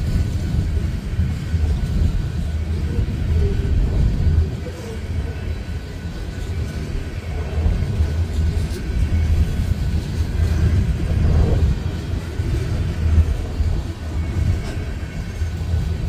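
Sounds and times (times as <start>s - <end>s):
freight train wheels rumbling on rails: 0.0s - 16.0s.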